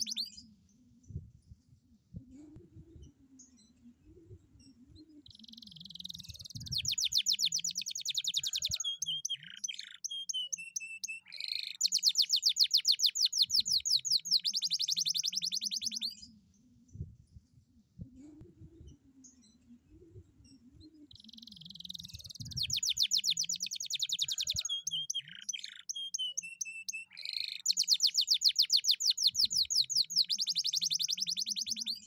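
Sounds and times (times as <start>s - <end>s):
canary singing: 0.0s - 0.4s, 5.2s - 16.3s, 21.1s - 32.0s.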